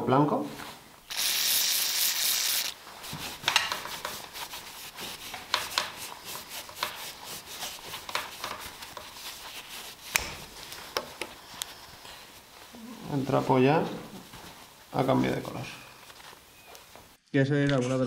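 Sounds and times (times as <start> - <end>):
aerosol spray hissing: 1.1 - 11.4
cloth rag rubbing metal: 1.1 - 17.2.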